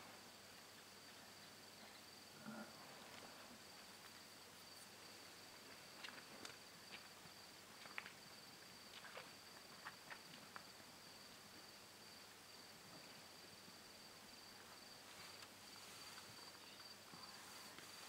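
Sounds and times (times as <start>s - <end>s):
crickets trilling: 4.6s - 18.0s.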